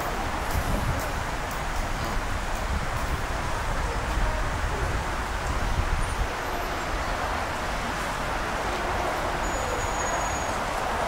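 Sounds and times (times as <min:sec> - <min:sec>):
wind rumbling on microphone: 0:00.0 - 0:09.2
outdoor city background noise: 0:00.0 - 0:11.0.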